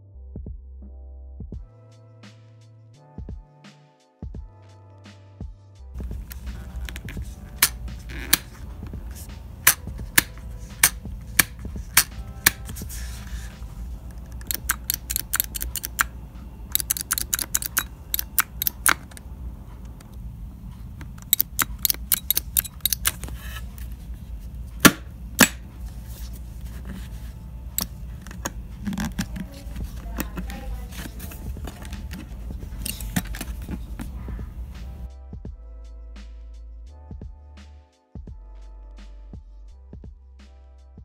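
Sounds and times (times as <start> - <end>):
helmet visor plastic clicks: 6.0 - 12.9, 14.0 - 16.1, 16.7 - 19.2, 21.0 - 24.0, 24.8 - 25.7, 27.7 - 34.2.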